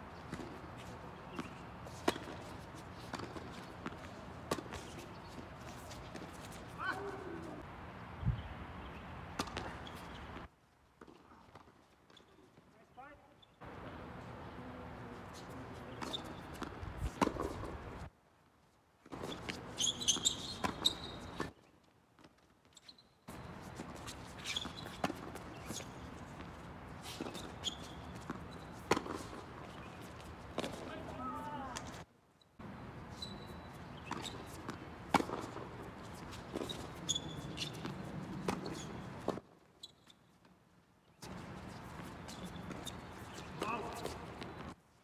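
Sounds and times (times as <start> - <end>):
balls bouncing on hard court: 0.2 - 7.6, 9.4 - 12.3, 15.9 - 17.8, 19.1 - 21.6, 23.3 - 32.0, 33.3 - 39.4, 41.2 - 44.8
tennis balls struck by rackets: 0.2 - 7.6, 9.3 - 11.7, 15.9 - 17.8, 19.1 - 21.6, 23.4 - 32.0, 33.9 - 39.5, 41.2 - 44.8.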